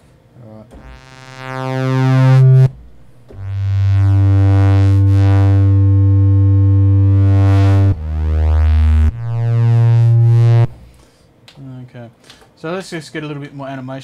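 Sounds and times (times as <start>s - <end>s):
synthesizer pad notes: 0.7s - 11.0s.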